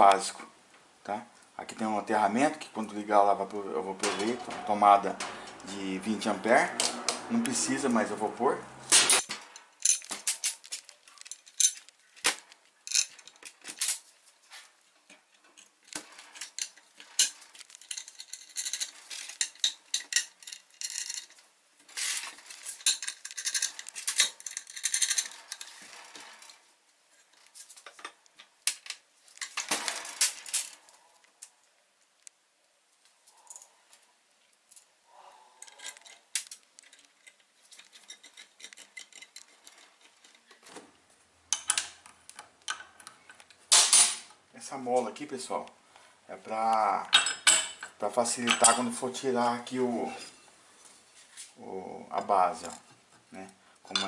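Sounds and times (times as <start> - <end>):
metal hardware clinking: 4.0 - 6.2, 9.0 - 31.6, 34.6 - 40.7, 41.5 - 44.3, 47.1 - 49.0.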